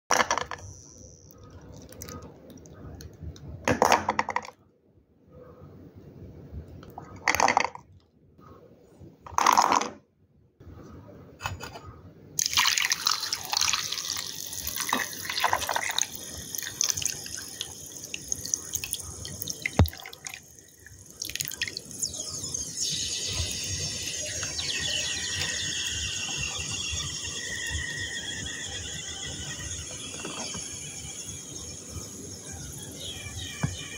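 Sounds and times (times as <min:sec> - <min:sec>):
water pouring into a bowl: 0:12.4 - 0:27.0.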